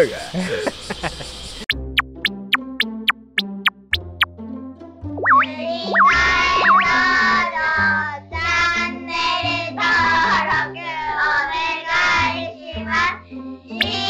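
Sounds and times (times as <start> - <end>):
bouncy bass line: 1.7 - 4.3, 5.2 - 7.2, 13.8 - 14.0
cartoon rising slide effect: 5.2 - 7.5, 13.8 - 14.0
high childlike singing voice: 5.4 - 14.0.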